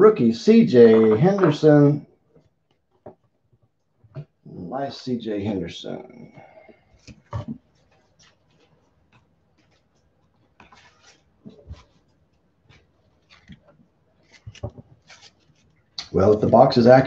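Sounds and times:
trading cards scraping and clicking: 0:12.7 - 0:16.6.

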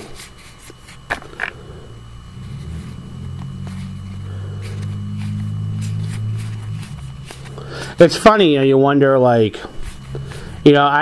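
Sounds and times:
low engine-like rumble: 0:01.2 - 0:11.0.

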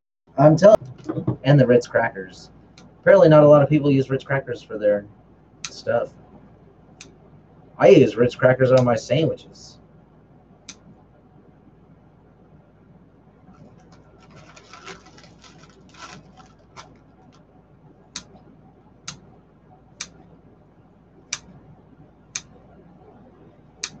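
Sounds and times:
slices rustling: 0:13.6 - 0:17.1.

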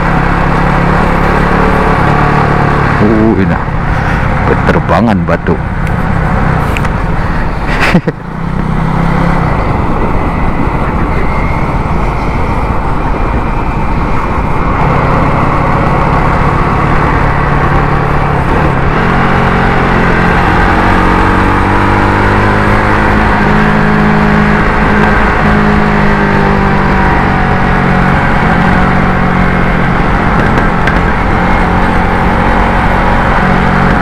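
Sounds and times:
motorcycle engine running: 0:00.0 - 0:04.7, 0:05.6 - 0:34.0
wind on microphone: 0:09.4 - 0:15.7.

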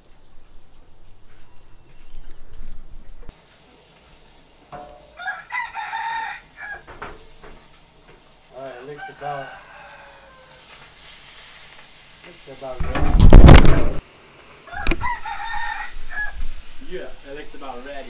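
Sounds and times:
fish sizzling in butter in a pan: 0:03.3 - 0:12.8, 0:14.0 - 0:18.0
rooster crowing: 0:05.2 - 0:07.0, 0:08.6 - 0:10.8, 0:14.6 - 0:16.5.

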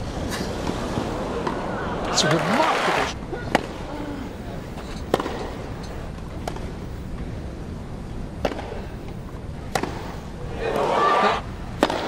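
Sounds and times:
crowd cheering: 0:01.2 - 0:03.2, 0:10.5 - 0:11.5
tennis ball struck by racquet: 0:09.7 - 0:10.1, 0:11.8 - 0:12.0.

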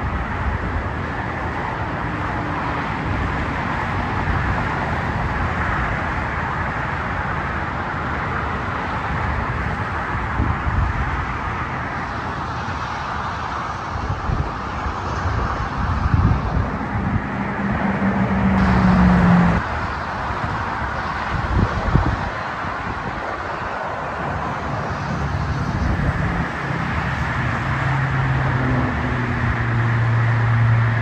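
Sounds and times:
low hum: 0:16.6 - 0:19.6
diesel locomotive idling: 0:17.6 - 0:19.6.

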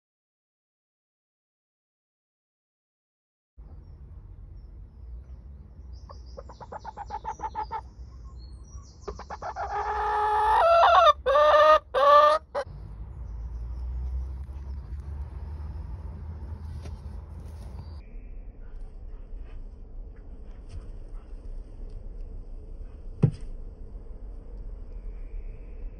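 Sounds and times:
hen clucking and calling: 0:06.1 - 0:12.7
low rumble: 0:12.6 - 0:25.9.

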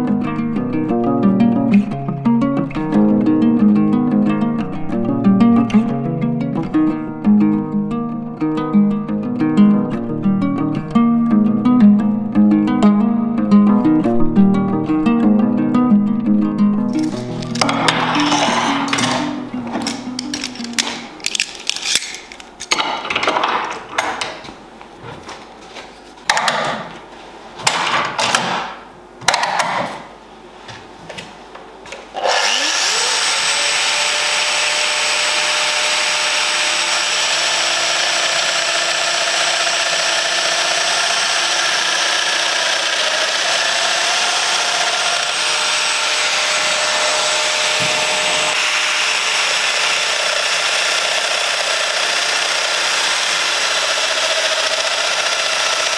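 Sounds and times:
power tool motor whining: 0:17.4 - 0:21.1, 0:32.2 - 0:55.9.

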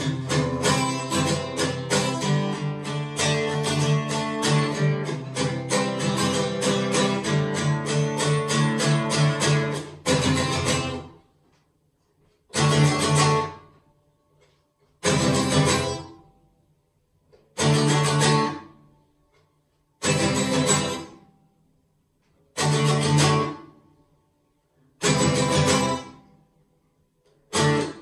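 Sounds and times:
acoustic guitar strumming: 0:00.0 - 0:11.4, 0:12.5 - 0:16.4, 0:17.5 - 0:18.9, 0:20.0 - 0:21.4, 0:22.5 - 0:24.0, 0:25.0 - 0:26.4, 0:27.5 - 0:28.0.

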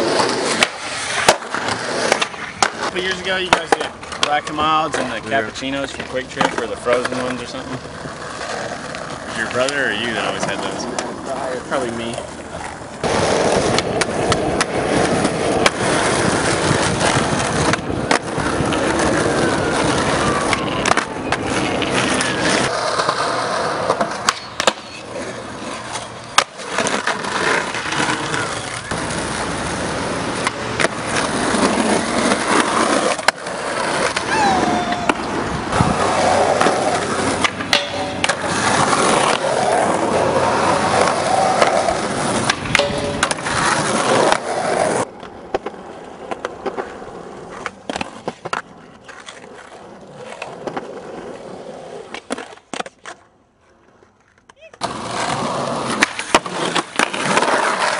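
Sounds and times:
skateboard clacks: 0:00.0 - 0:57.9
skateboard wheels rolling on pavement: 0:00.0 - 0:57.9.

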